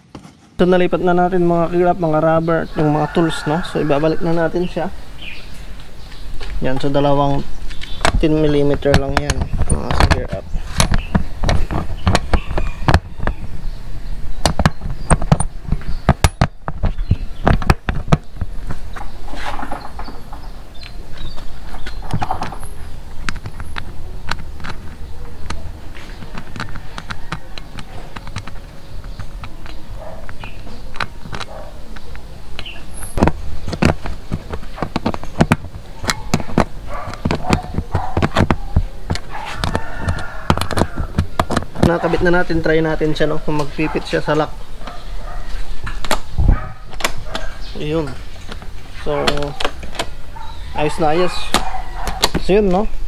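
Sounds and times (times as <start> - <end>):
metal and plastic clicks and knocks: 26.2 - 42.0.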